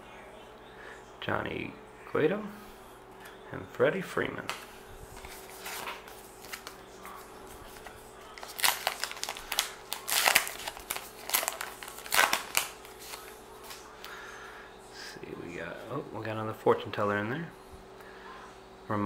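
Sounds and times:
wrapper tearing and crinkling: 0:07.7 - 0:13.8.

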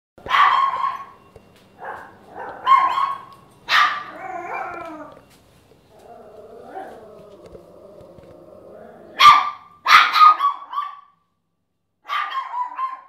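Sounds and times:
small dog barking: 0:00.2 - 0:01.2, 0:01.8 - 0:04.9, 0:09.2 - 0:11.2, 0:12.0 - 0:13.0.

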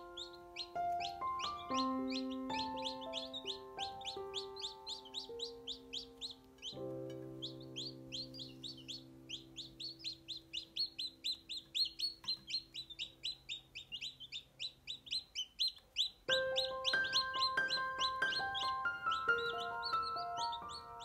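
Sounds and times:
held music chord: 0:00.0 - 0:12.1, 0:16.3 - 0:21.0
chicks peeping: 0:00.0 - 0:21.0
chime-like music notes: 0:16.3 - 0:21.0.

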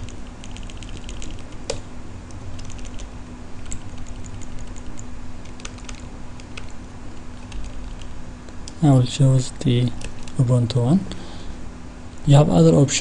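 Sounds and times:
keyboard keys clicking: 0:00.0 - 0:01.8, 0:02.6 - 0:06.8, 0:07.4 - 0:08.1, 0:10.0 - 0:10.4
low steady hum: 0:00.0 - 0:13.0.

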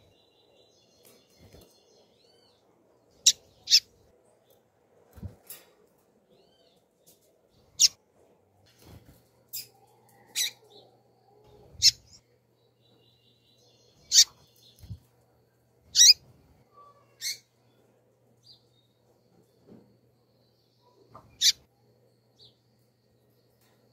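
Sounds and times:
bird giving high-pitched chirps: 0:14.0 - 0:15.0, 0:15.9 - 0:16.2.

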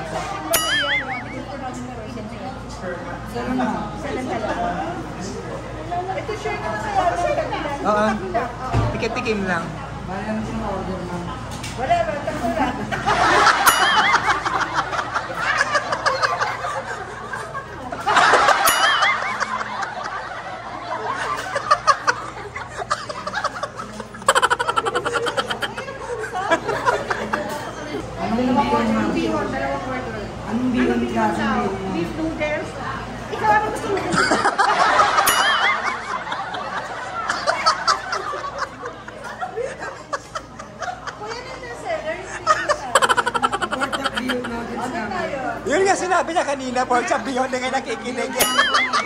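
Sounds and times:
women laughing: 0:00.6 - 0:02.0, 0:12.5 - 0:28.2, 0:33.9 - 0:45.5, 0:48.3 - 0:49.0.

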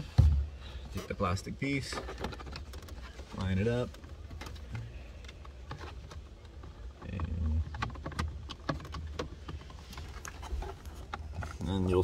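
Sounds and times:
plastic clicks and knocks: 0:01.8 - 0:11.6.

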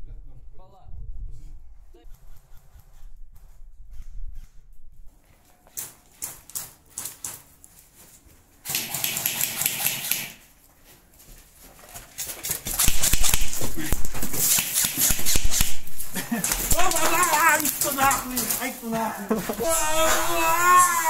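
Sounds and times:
airsoft guns firing: 0:08.6 - 0:10.4, 0:12.7 - 0:18.4.

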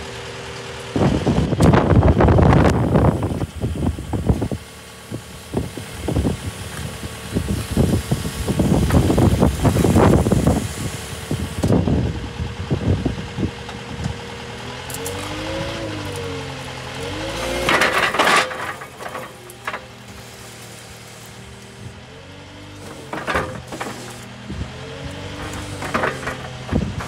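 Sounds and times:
diesel engine idling: 0:00.0 - 0:27.0
loud knocks and buffets: 0:25.3 - 0:27.0.

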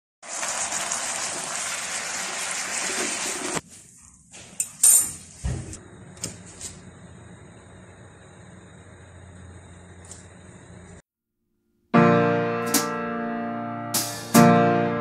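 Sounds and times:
chicken hissing in a pot: 0:00.2 - 0:03.6.

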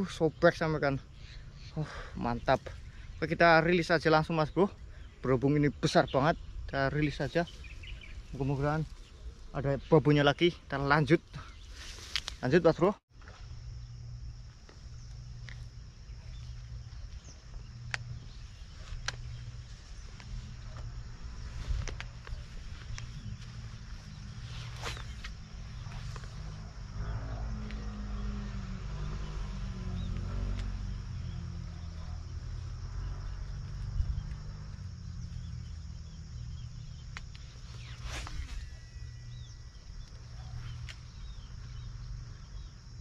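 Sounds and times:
insect chirps: 0:00.0 - 0:43.0
bird chirps: 0:00.1 - 0:10.4, 0:27.7 - 0:42.8.

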